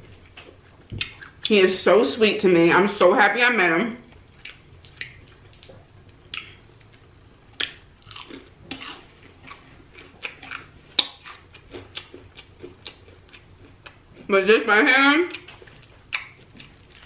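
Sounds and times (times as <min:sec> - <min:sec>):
person chewing crispy food: 0:04.1 - 0:14.3, 0:15.3 - 0:17.0.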